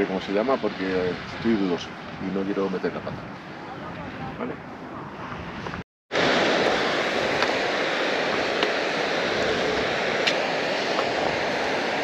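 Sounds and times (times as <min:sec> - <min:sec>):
mountain water rushing: 0:00.0 - 0:04.3, 0:06.1 - 0:12.0.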